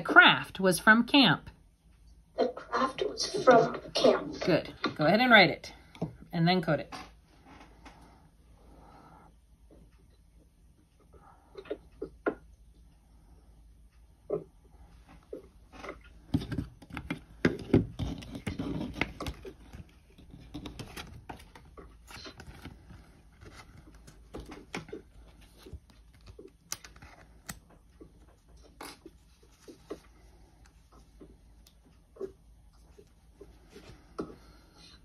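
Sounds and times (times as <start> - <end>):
pencil and paper on a desk: 15.1 - 35.0.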